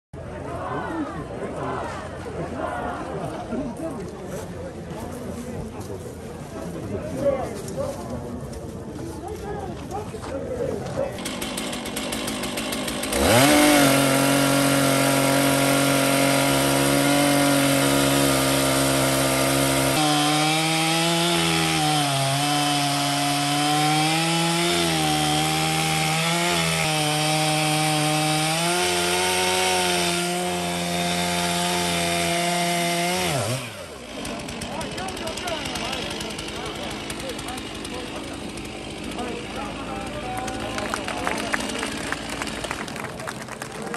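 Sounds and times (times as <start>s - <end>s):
chainsaw cutting log: 11.1s - 43.2s.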